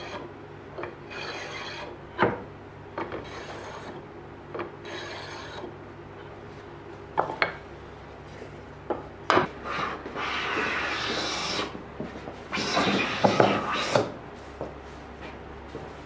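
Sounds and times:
hand plane shaving wood: 4.8 - 5.7, 9.7 - 11.8, 12.6 - 14.1.

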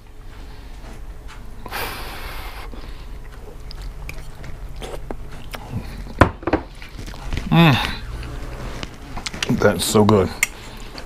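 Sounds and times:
person chewing close to microphone: 2.7 - 11.0
small mouth clicks: 3.3 - 5.8.

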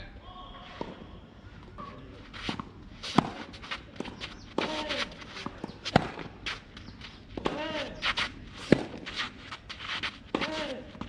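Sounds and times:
quick footsteps and shoe scuffs: 2.2 - 11.0.

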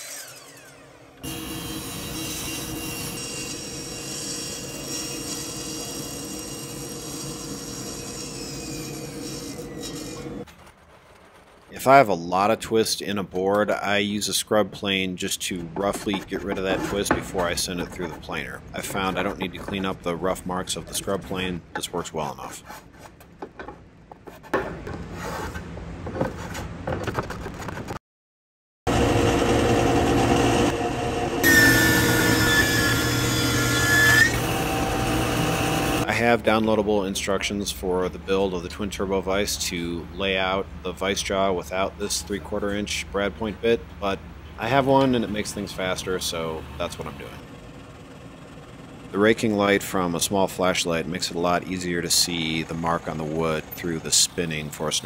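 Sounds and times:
thickness planer running: 0.0 - 10.4, 28.9 - 36.1
table saw ripping wood: 0.0 - 11.7, 28.9 - 36.1
hand plane shaving wood: 15.8 - 18.3.

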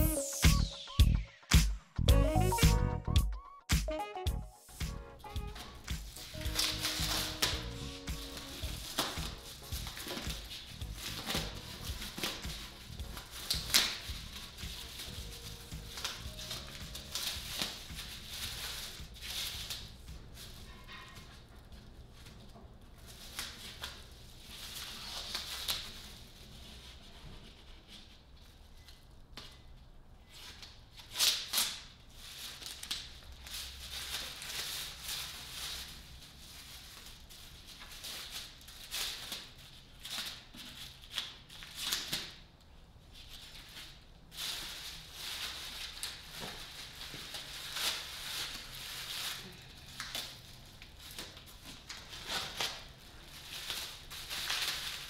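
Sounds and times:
plastic sheeting crinkling: 5.2 - 29.1, 30.2 - 42.4, 43.1 - 55.0
tape tearing: 5.3 - 21.0, 30.4 - 36.0, 37.0 - 42.4, 43.4 - 55.0.

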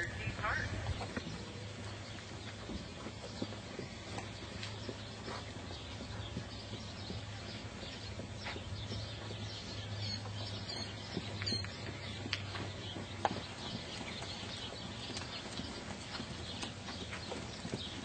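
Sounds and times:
horse hoofbeats on sand: 0.0 - 18.0
bird chirps: 4.2 - 18.0.

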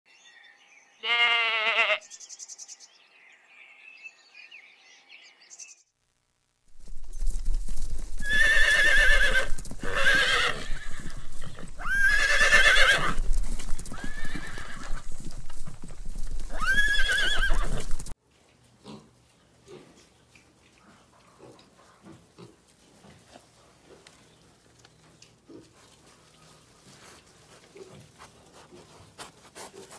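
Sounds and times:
goat bleat: 1.0 - 2.0
horse whinnying: 8.2 - 15.2, 16.4 - 18.2
pig grunts: 18.8 - 20.1.

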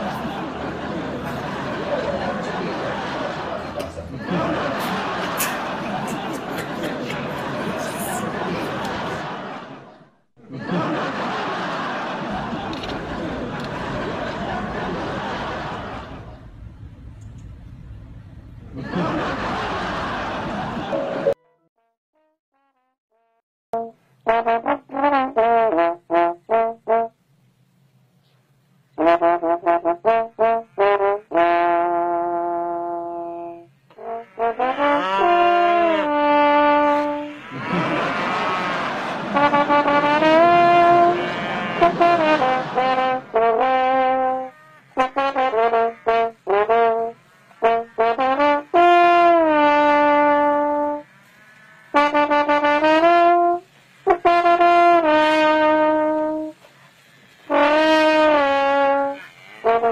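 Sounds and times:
trombone playing: 20.9 - 27.2, 29.0 - 56.6, 57.4 - 59.9.

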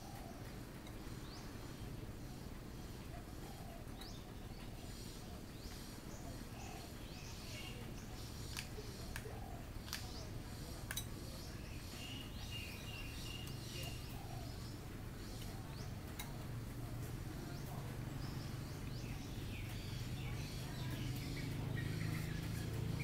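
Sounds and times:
small birds chirping: 0.0 - 23.0
sharp clicks: 8.5 - 10.1.

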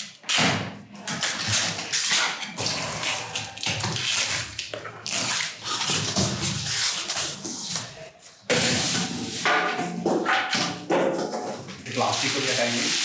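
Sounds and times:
cardboard and plastic rustling: 11.1 - 13.0.

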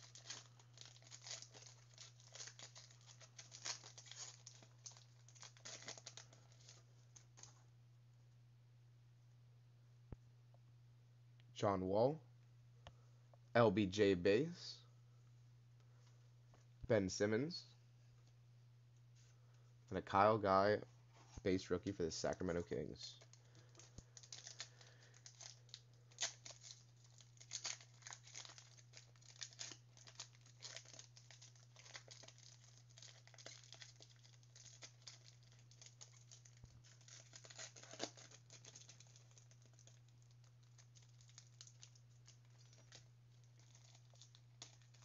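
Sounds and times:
card wrappers crinkling and tearing: 0.0 - 7.6, 22.6 - 45.0
low electrical hum: 0.0 - 45.0.

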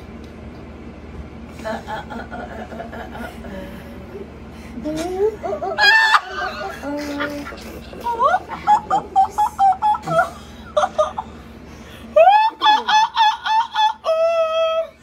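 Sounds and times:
women laughing hard: 1.6 - 3.7, 5.3 - 11.4, 12.1 - 14.9
long high held cry: 5.8 - 6.7, 12.2 - 15.0.

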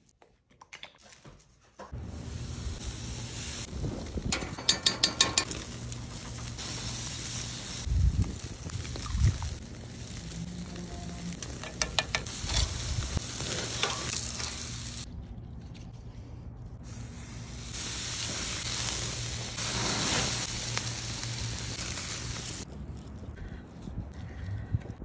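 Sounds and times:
steaks sizzling on a grill: 2.0 - 4.2, 5.4 - 15.1, 16.9 - 22.7.

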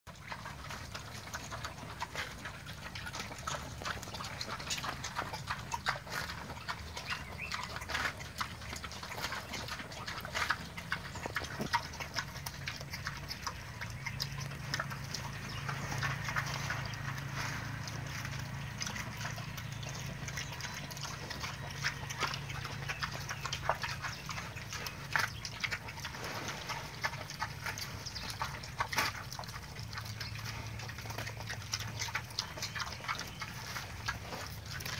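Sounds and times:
pigs chewing and crunching fruit: 0.1 - 34.9.

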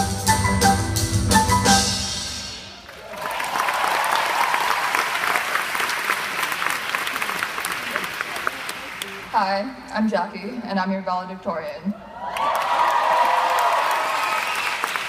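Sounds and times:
music with drum beat: 0.0 - 2.7
crowd applauding: 2.8 - 9.4, 12.2 - 15.0.

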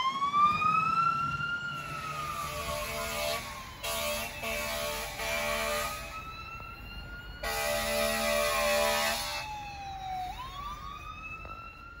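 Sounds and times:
emergency siren wailing: 0.0 - 12.0
horn blasts: 2.5 - 6.0.

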